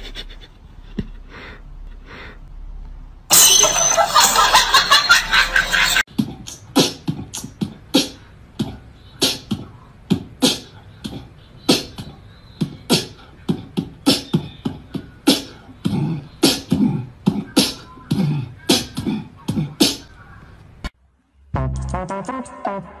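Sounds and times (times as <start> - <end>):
beatboxing clicks and thumps: 6.1 - 20.1.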